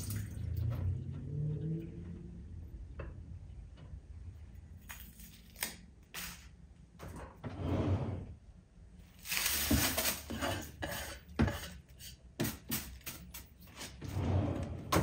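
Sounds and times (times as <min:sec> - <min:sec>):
onion skins rustling and scraping: 0:09.0 - 0:12.2.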